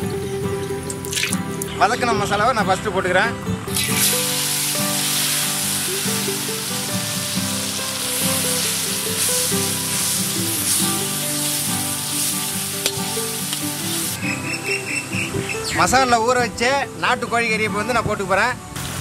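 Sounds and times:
paste sizzling in hot oil: 3.7s - 14.2s.

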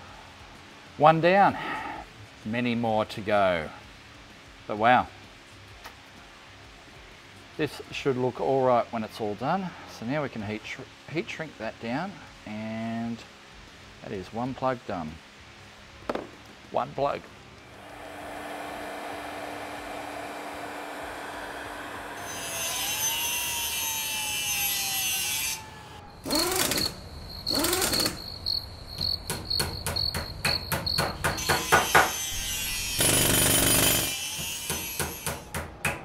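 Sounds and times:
high hiss with gliding tone: 0.0s - 29.0s, 31.3s - 35.5s
heat gun blowing with motor hum: 17.6s - 28.2s, 31.3s - 35.5s.

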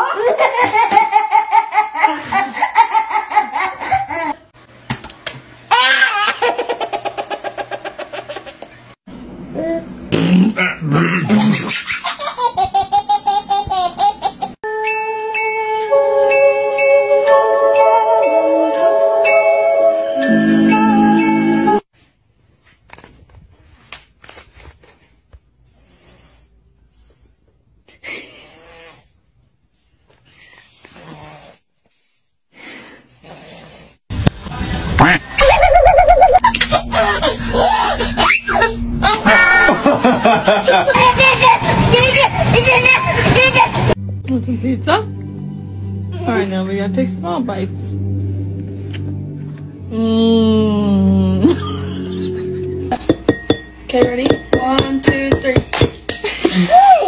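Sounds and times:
baby laughing in bursts: 0.1s - 4.4s, 5.7s - 8.8s, 11.5s - 14.6s, 40.3s - 44.0s
baby snoring: 30.6s - 31.7s, 33.2s - 34.0s
second baby laughing: 35.4s - 44.0s.

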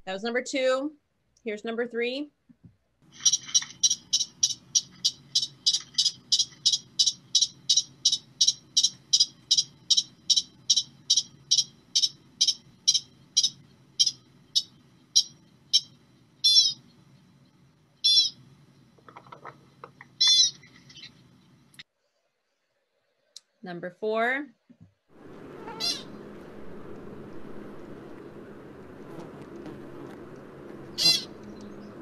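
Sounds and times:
low steady rumble: 3.0s - 21.8s, 25.1s - 32.0s
pika calling high eeps: 3.2s - 16.9s, 18.0s - 18.4s, 20.2s - 21.2s, 30.9s - 31.4s.

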